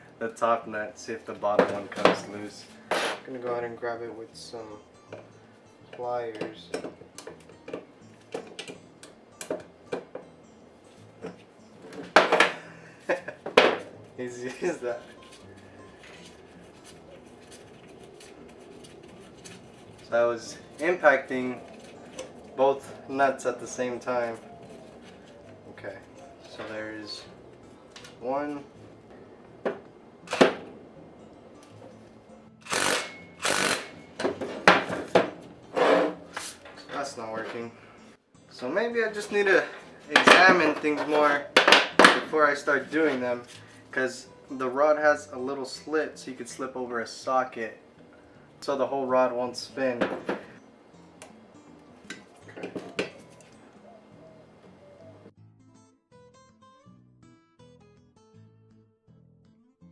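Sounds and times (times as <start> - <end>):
impact driver bursts: 32.6 - 34.0.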